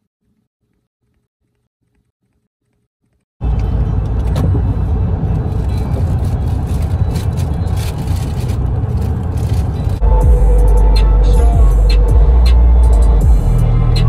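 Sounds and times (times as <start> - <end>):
road and wind noise inside car: 3.4 - 14.0.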